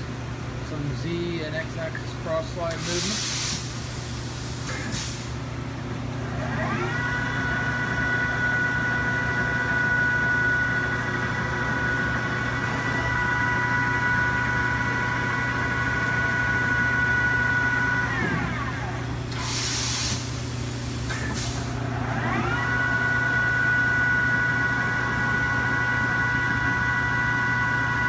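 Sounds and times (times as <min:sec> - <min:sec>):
machine hum: 0:03.6 - 0:28.0
lathe spindle whine: 0:06.3 - 0:19.4, 0:21.8 - 0:28.0.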